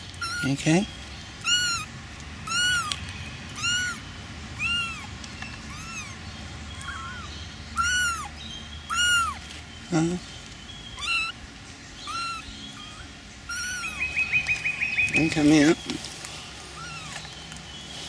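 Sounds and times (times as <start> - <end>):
kittens meowing: 0.0 - 10.2, 10.9 - 15.8, 16.7 - 17.3.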